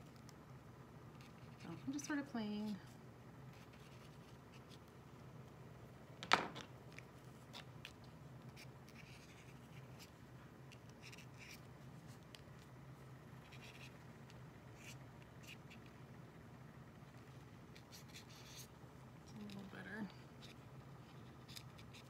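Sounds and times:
marker scratching on paper: 3.5 - 4.8, 8.5 - 10.1, 11.0 - 11.7, 13.4 - 14.0, 14.8 - 15.9, 17.7 - 18.7.

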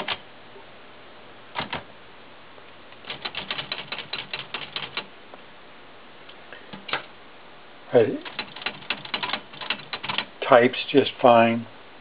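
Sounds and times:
typewriter clicks: 0.0 - 0.2, 1.6 - 1.8, 3.0 - 5.1, 8.2 - 10.4
typewriter typebar strikes: 1.6 - 1.8, 8.2 - 10.3.

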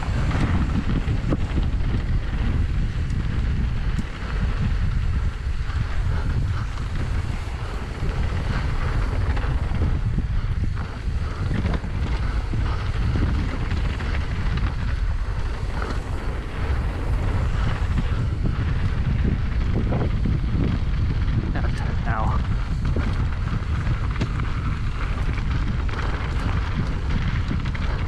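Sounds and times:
mountain bike rumbling and rattling: 0.0 - 28.0
wind buffeting microphone: 0.0 - 28.0.

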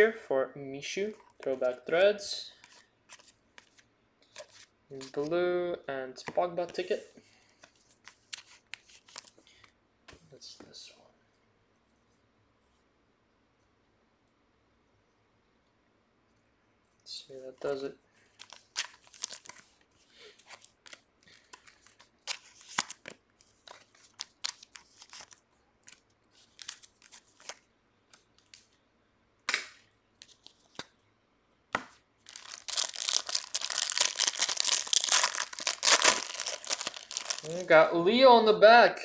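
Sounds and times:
plastic wrapper rustling: 18.3 - 28.8, 32.2 - 37.7
wrapper tearing open: 18.4 - 19.7, 23.7 - 27.6, 32.2 - 37.7.

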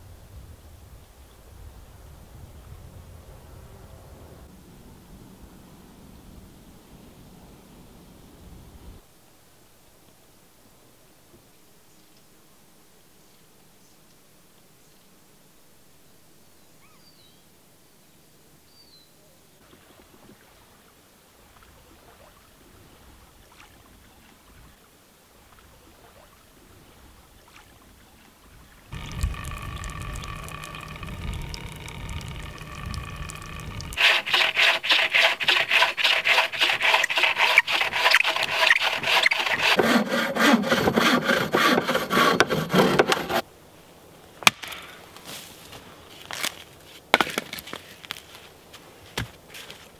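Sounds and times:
hand saw cutting a log: 28.9 - 43.4
sharp wood knock: 44.4 - 44.9.

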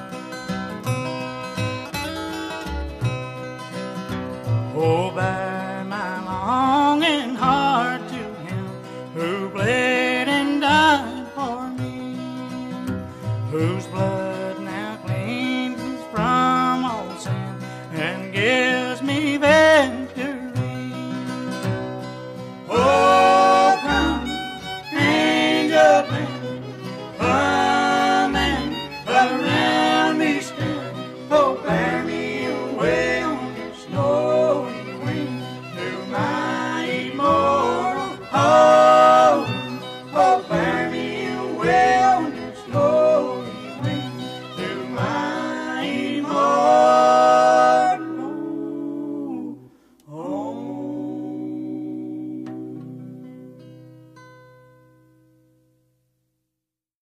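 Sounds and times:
acoustic guitar: 0.0 - 56.4
fiddle melody: 18.5 - 48.1.

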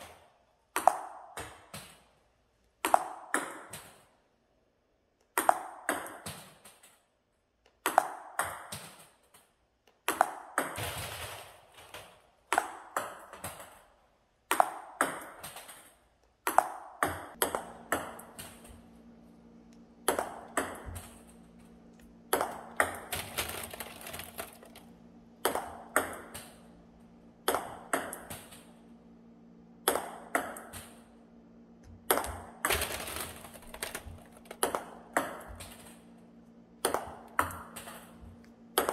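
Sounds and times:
steady low hum: 17.3 - 38.9.

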